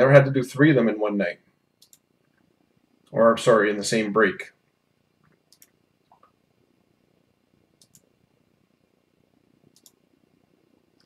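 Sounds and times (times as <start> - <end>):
computer mouse double-clicks: 1.8 - 2.0, 5.5 - 6.3, 7.8 - 8.1, 9.7 - 10.0.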